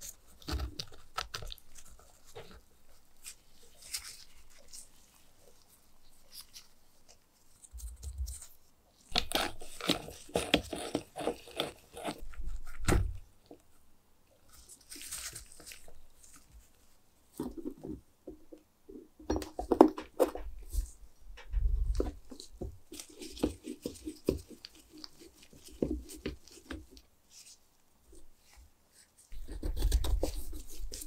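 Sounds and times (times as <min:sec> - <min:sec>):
rubbing and rustling of gloved hands: 0:00.0 - 0:18.5, 0:19.6 - 0:31.0.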